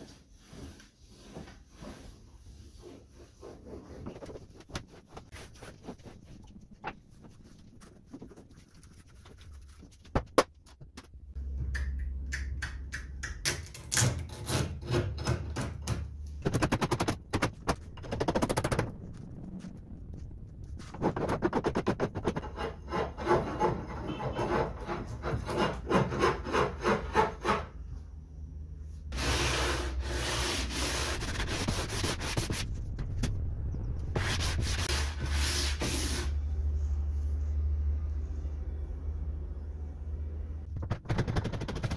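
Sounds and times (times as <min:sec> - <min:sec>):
metal file rasping: 0:22.2 - 0:27.8
sanding block rasping on wood: 0:29.2 - 0:32.6.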